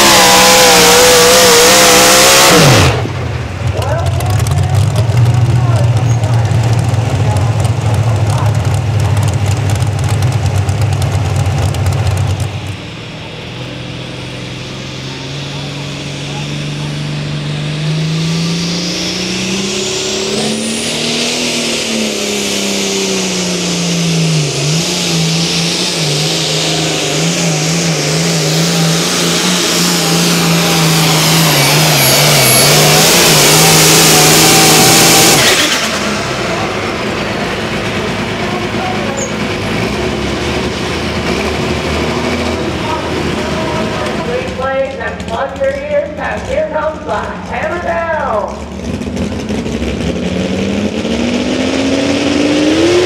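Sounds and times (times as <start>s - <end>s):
diesel tractor engine at full throttle: 0.0s - 53.0s.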